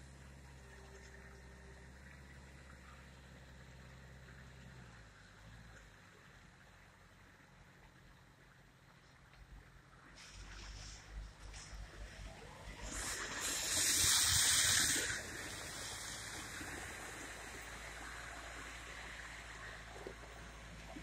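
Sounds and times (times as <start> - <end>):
low engine hum: 0.0 - 21.0
snow blower rushing hiss: 12.8 - 17.4.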